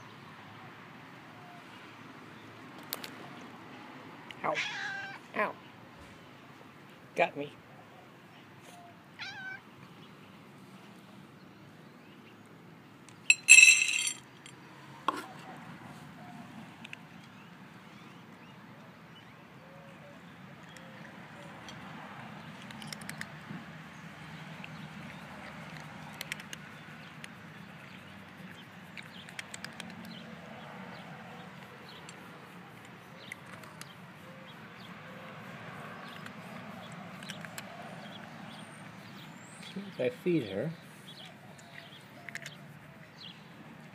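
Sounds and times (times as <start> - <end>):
cat meowing: 4.4 - 5.2, 9.2 - 9.6
cat crunching dry kibble: 22.4 - 23.4, 24.4 - 30.2, 41.6 - 42.7.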